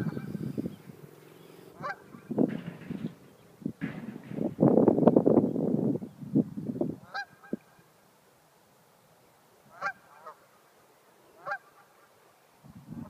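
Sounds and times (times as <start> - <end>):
geese honking: 1.4 - 4.0, 7.0 - 7.8, 9.7 - 10.6, 11.2 - 12.1.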